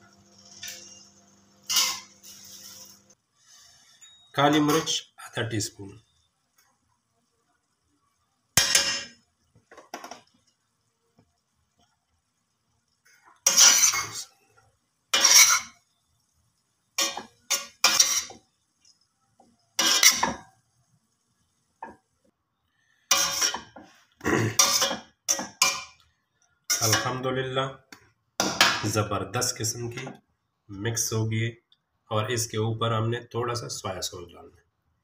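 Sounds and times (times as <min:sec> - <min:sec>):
metal spoon scraping a pot: 0:00.3 - 0:03.2, 0:13.4 - 0:14.3, 0:15.1 - 0:15.8, 0:17.0 - 0:19.0, 0:19.8 - 0:20.4, 0:23.1 - 0:24.0, 0:24.6 - 0:26.0, 0:26.7 - 0:27.2.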